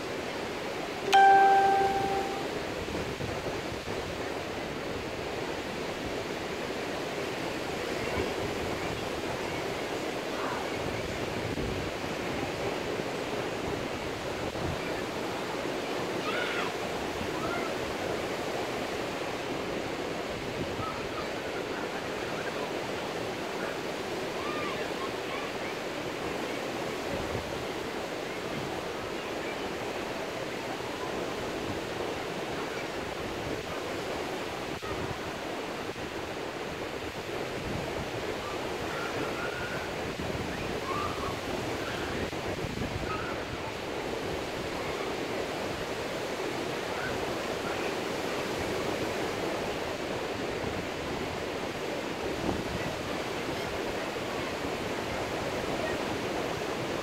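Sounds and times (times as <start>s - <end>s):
faint high chirps: 1.1s - 2.5s.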